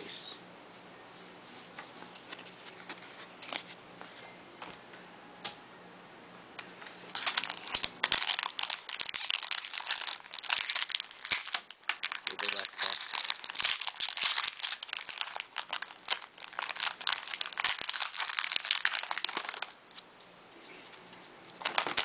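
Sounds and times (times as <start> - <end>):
plastic wrapper crinkling: 6.8 - 20.0, 20.9 - 22.0.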